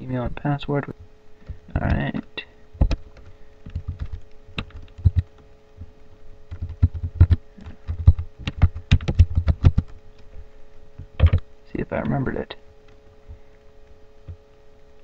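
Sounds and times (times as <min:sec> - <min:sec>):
computer keyboard typing: 0:02.8 - 0:05.4, 0:06.5 - 0:10.0, 0:11.2 - 0:11.4.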